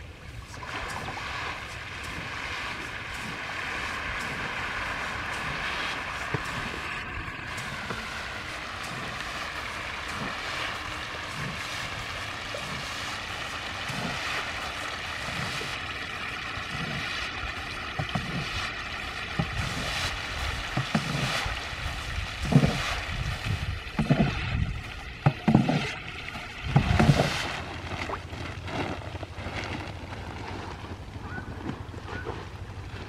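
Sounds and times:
catfish thrashing and splashing: 0.5 - 17.0.

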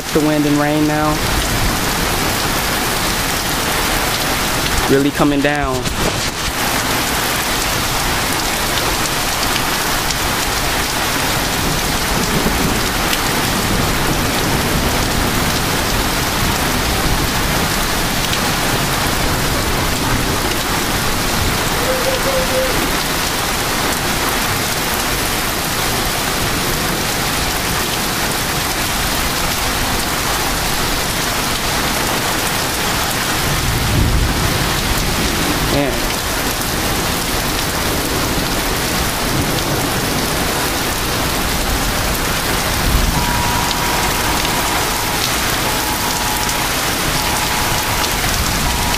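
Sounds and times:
heavy rain pouring: 0.0 - 48.9
wind: 0.0 - 48.9
low thunder rumble: 33.4 - 35.7, 37.7 - 48.9.

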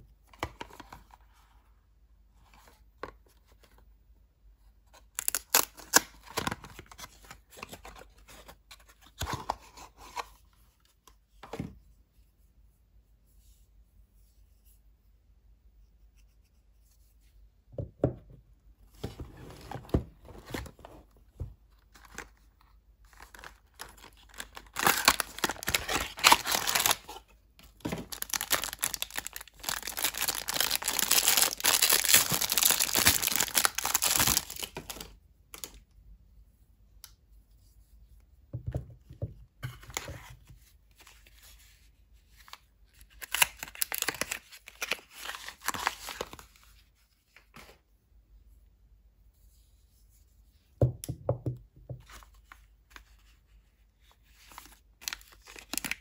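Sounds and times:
plastic wrapper crinkling: 23.1 - 35.1, 43.2 - 46.4, 55.0 - 56.0.

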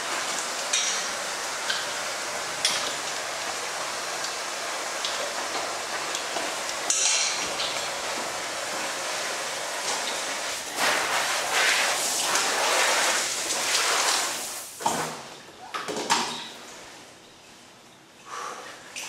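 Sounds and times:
water spraying from shower: 0.0 - 15.2.

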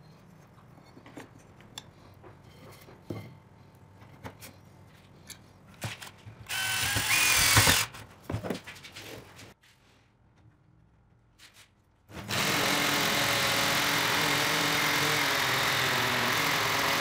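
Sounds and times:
drill grinding with high whine: 6.5 - 7.9, 12.3 - 17.0.

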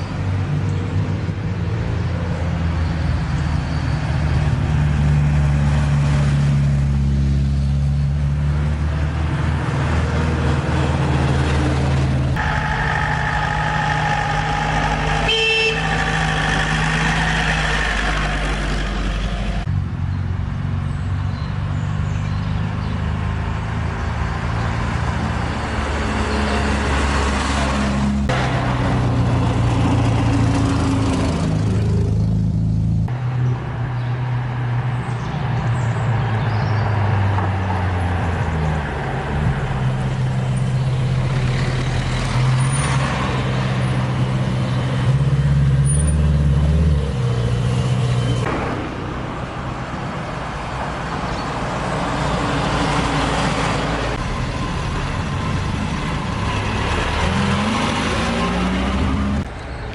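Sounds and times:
old car engines running: 11.0 - 19.7
horn-like tones: 12.4 - 18.3.

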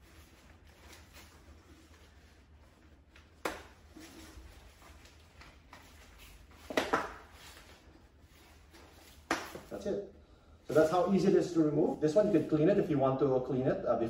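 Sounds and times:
fabric rustling: 0.0 - 9.8, 10.6 - 13.0.

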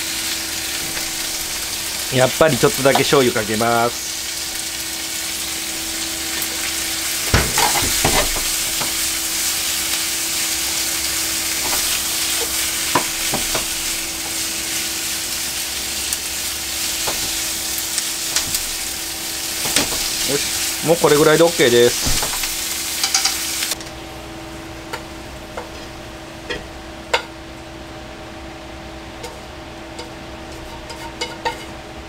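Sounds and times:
food sizzling in a frying pan: 0.0 - 23.8
steady low hum: 0.0 - 32.0
chopsticks clicking on pan: 23.0 - 23.4.

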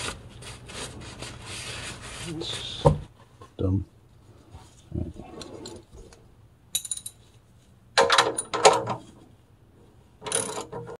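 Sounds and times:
ratchet wrench clinking and rattling: 6.7 - 7.2, 10.2 - 10.8.

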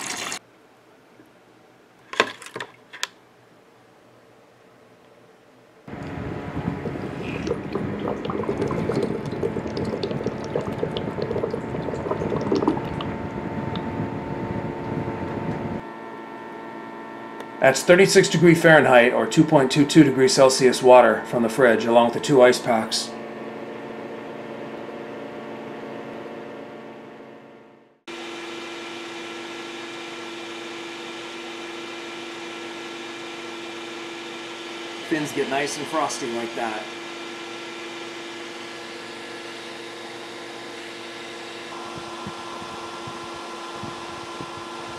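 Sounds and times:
water pump humming: 0.0 - 0.4, 5.9 - 44.9
water gurgling and splashing: 6.1 - 14.6.

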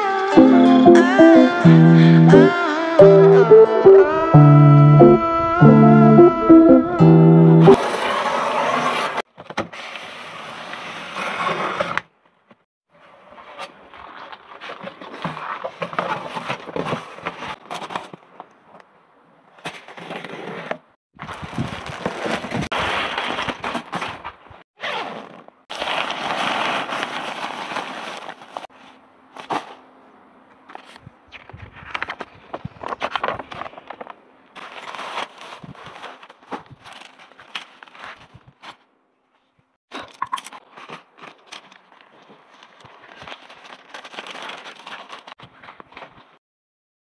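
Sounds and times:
cardboard scraping and rustling: 13.1 - 18.4, 19.6 - 29.9, 30.7 - 38.8, 40.6 - 46.4.

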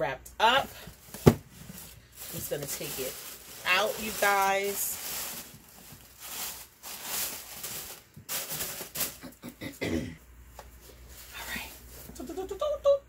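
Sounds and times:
fabric bag rustling and crinkling: 0.5 - 9.2.

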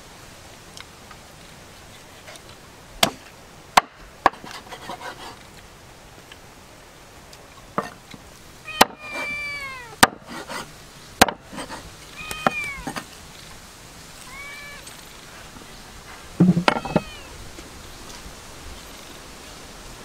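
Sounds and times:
cat meowing: 8.6 - 10.0, 12.1 - 13.0, 14.2 - 15.0, 16.6 - 17.4
sharp chopping strokes: 10.0 - 11.9.

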